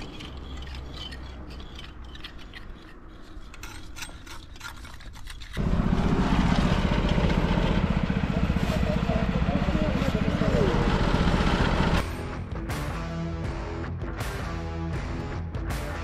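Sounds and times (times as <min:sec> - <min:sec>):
hand tools scraping mortar: 0:00.0 - 0:05.7
pulsing machine engine: 0:05.6 - 0:12.2.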